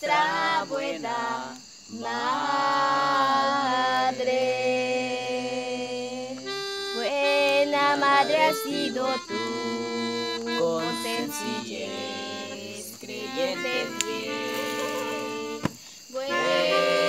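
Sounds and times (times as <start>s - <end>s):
melodica playing a slow hymn: 5.4s - 17.0s.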